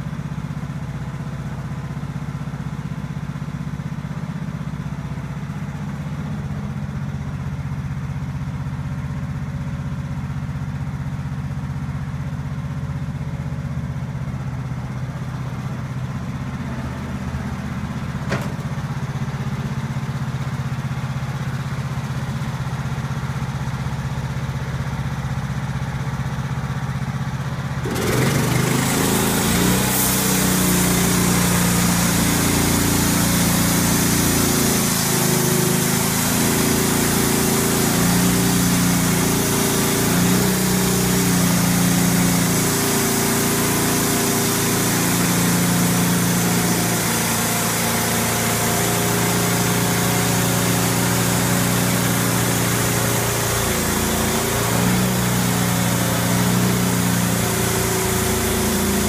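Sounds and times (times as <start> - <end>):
sawmill engine under load: 0.0 - 59.0
band blade hissing in wood: 29.0 - 59.0.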